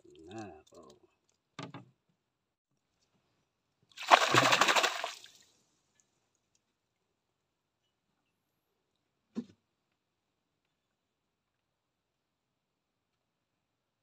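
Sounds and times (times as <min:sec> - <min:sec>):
fish splashing in water: 0:04.0 - 0:05.4.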